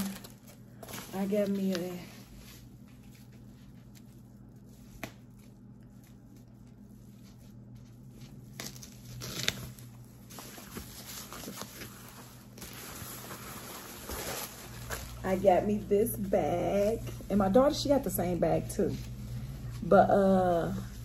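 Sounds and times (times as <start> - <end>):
gift packaging rustling: 0.0 - 4.9, 5.6 - 17.0.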